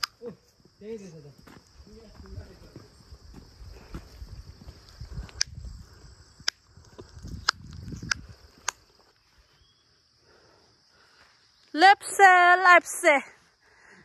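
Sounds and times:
insects chirring: 0.0s - 14.0s
sharp clicks: 5.2s - 5.6s, 6.4s - 8.9s.

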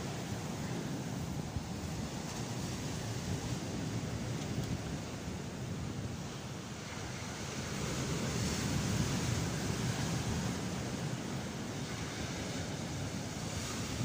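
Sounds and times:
sea surf breaking on beach: 0.0s - 14.0s.

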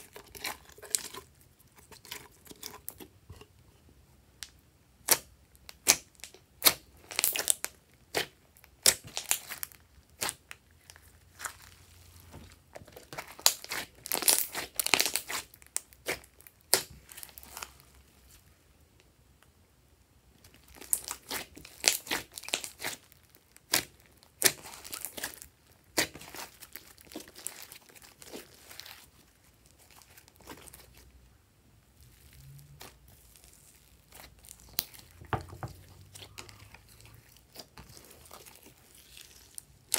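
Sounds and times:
slime popping and crackling: 5.0s - 11.8s, 12.8s - 17.9s, 20.5s - 31.0s, 32.0s - 39.9s.

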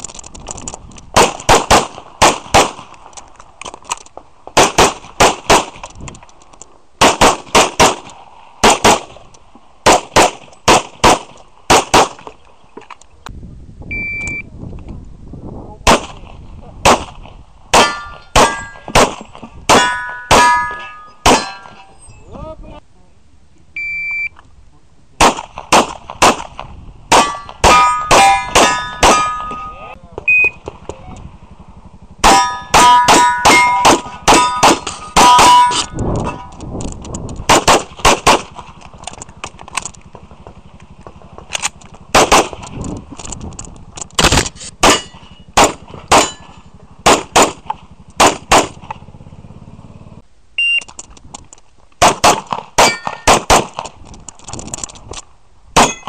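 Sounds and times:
pistol shots: 1.1s - 2.9s, 4.6s - 5.8s, 7.0s - 9.2s, 9.8s - 12.3s, 15.8s - 22.0s, 25.2s - 29.7s, 32.2s - 36.6s, 37.4s - 38.8s, 41.6s - 42.7s, 44.2s - 48.9s, 52.0s - 53.9s, 55.8s - 56.0s
steel targets ringing: 17.8s - 19.0s, 19.7s - 22.2s, 27.1s - 30.0s, 32.2s - 36.6s, 44.8s - 46.7s, 52.8s - 53.3s, 55.8s - 56.0s.

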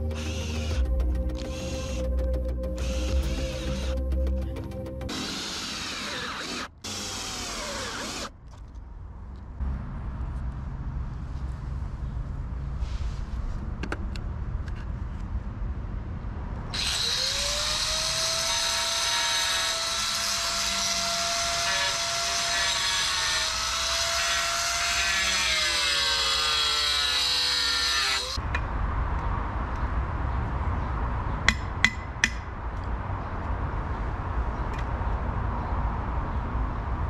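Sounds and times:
power tool cutting cement sheet: 5.1s - 8.3s, 16.8s - 28.4s.

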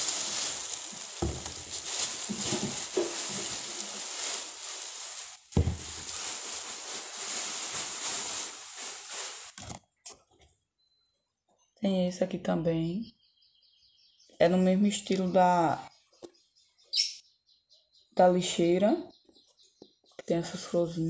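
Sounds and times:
plastic rustling and crinkling: 0.0s - 10.2s
soft thumps: 5.1s - 6.4s.

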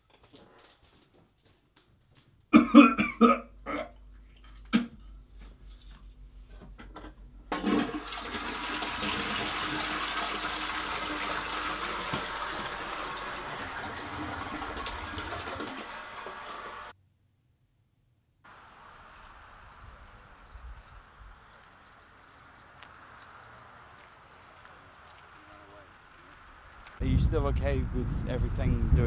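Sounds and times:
person retching: 2.5s - 4.0s, 4.6s - 5.0s
toilet flushing: 7.5s - 17.0s.

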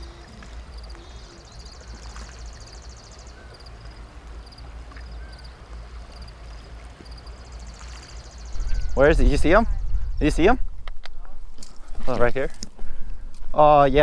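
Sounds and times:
wind on microphone: 8.5s - 12.0s.

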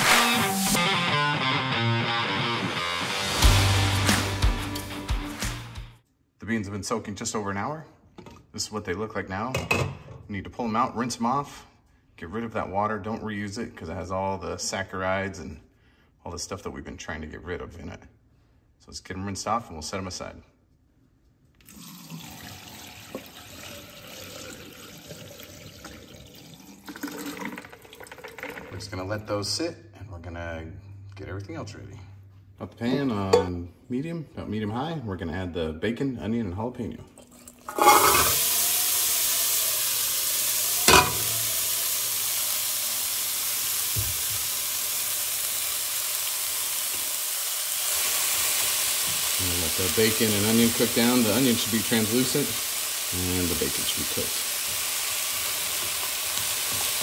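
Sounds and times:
food sizzling in a hot pot: 0.0s - 0.8s, 37.6s - 57.0s
water pouring through colander: 21.6s - 28.9s, 37.2s - 47.8s.

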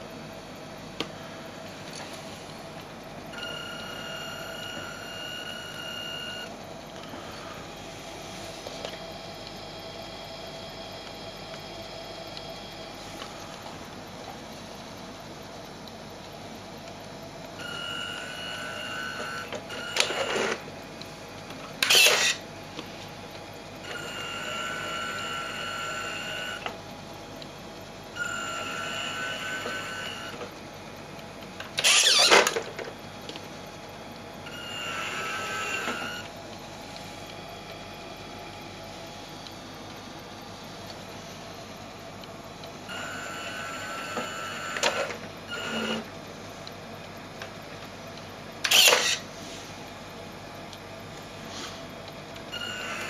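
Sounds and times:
small electric motors whining: 3.3s - 14.0s, 17.6s - 20.7s, 21.8s - 22.5s, 23.8s - 26.8s, 28.1s - 30.5s, 31.8s - 33.4s, 34.4s - 36.4s, 42.9s - 46.1s, 48.6s - 49.3s, 52.5s - 53.0s.

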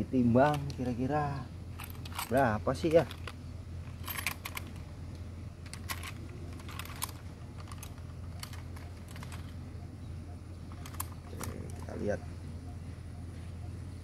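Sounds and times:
metal clicks and rattles: 1.7s - 4.9s, 5.6s - 9.6s, 10.7s - 12.0s.

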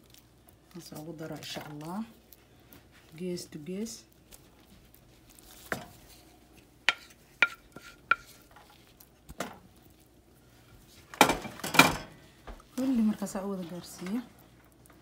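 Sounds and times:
spoon scraping and pushing food: 4.3s - 10.0s
spoon tapping pan: 6.9s - 8.4s.

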